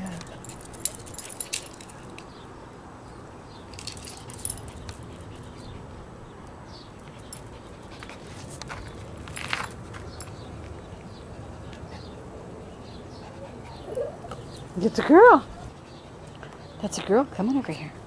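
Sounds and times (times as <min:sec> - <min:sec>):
dog collar tags jingling: 0:00.0 - 0:02.4, 0:03.6 - 0:05.2.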